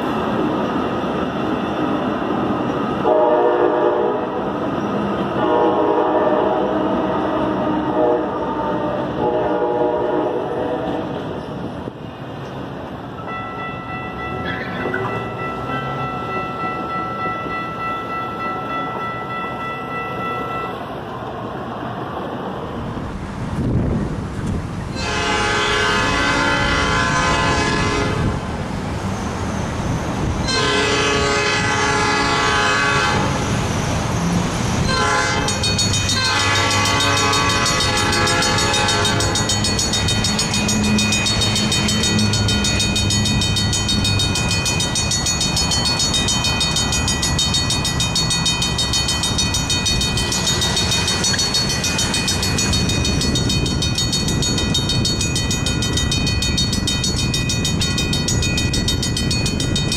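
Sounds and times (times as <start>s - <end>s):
train rumbling: 0.0s - 59.9s
locomotive air horn blasts: 3.0s - 4.4s, 5.4s - 11.1s, 25.0s - 28.4s, 30.5s - 33.4s, 34.9s - 35.6s, 36.2s - 39.5s
crossing warning bell ringing: 13.1s - 21.1s, 34.8s - 59.9s.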